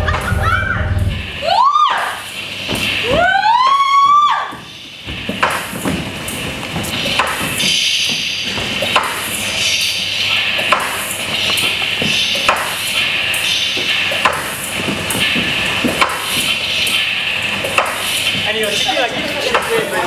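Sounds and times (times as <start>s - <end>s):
sharp knocks: 4.1s - 9.4s, 10.6s - 12.9s, 13.8s - 17.0s, 17.7s - 18.5s.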